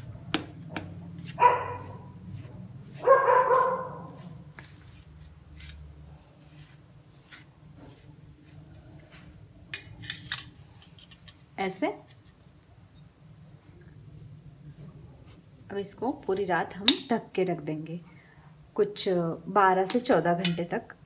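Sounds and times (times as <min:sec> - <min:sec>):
spoon scraping a steel plate: 0:09.8 - 0:11.4.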